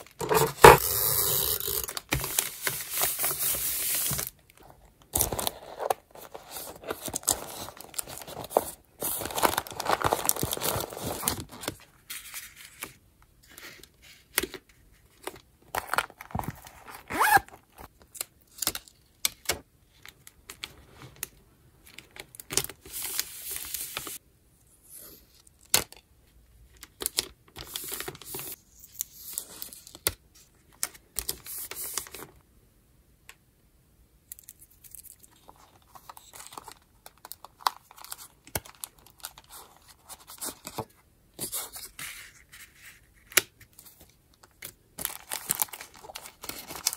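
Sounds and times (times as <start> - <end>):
paper and plastic rustling: 0.0 - 13.0, 34.9 - 46.9.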